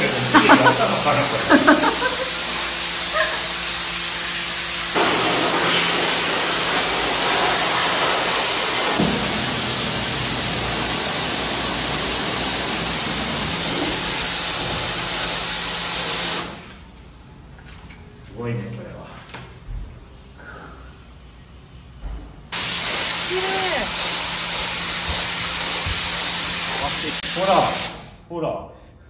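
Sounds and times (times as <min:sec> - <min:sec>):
pump motor hum: 0:00.0 - 0:16.7, 0:22.6 - 0:27.9
pressure washer jet hissing: 0:00.0 - 0:16.8, 0:22.6 - 0:28.2.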